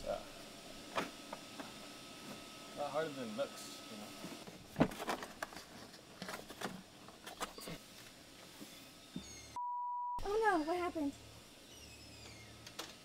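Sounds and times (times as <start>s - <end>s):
high censor bleep: 9.6s - 10.3s.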